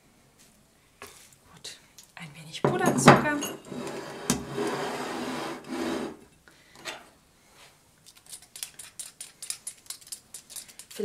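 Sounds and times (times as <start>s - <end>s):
rubbing rasping sound: 3.7s - 6.2s.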